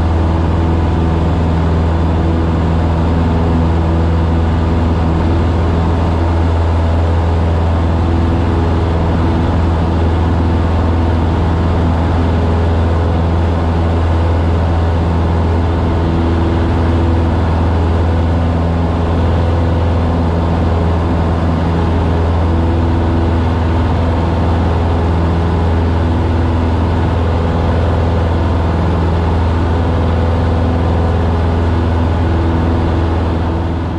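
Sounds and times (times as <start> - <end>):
light aircraft engine droning: 0.0 - 33.9.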